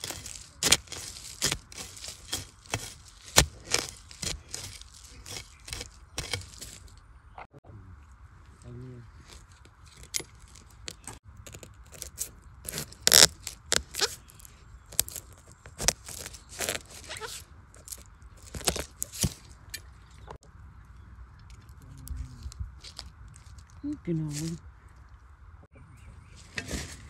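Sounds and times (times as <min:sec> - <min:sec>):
knife cutting and scraping soil: 0:00.0 - 0:07.0, 0:09.2 - 0:19.9, 0:26.4 - 0:27.0.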